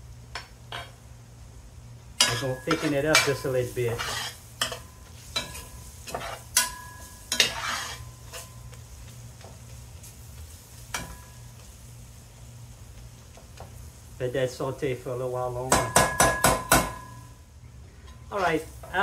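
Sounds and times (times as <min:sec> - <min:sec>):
low sizzle: 0:00.0 - 0:19.0
steady low hum: 0:00.0 - 0:19.0
spoon scraping metal pot: 0:02.2 - 0:04.8, 0:07.3 - 0:08.5.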